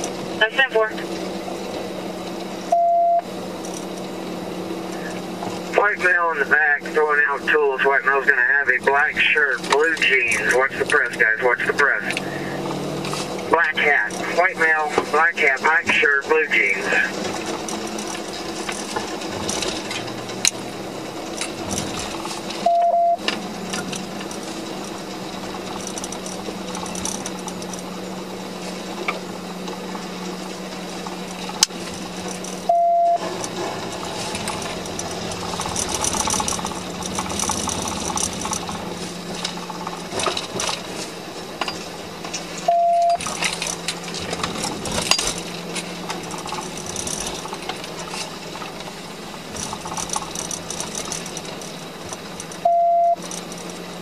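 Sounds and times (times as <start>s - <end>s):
car road and engine noise: 0.0s - 54.0s
short beep: 2.7s - 3.3s, 22.6s - 23.2s, 32.7s - 33.2s, 42.7s - 43.2s, 52.6s - 53.2s.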